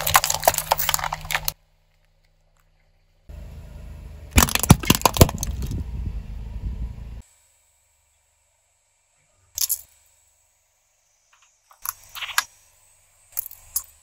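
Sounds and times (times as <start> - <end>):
knives cracking under car tyre: 0.0 - 1.6, 4.4 - 5.8
low tyre rumble: 0.0 - 7.2.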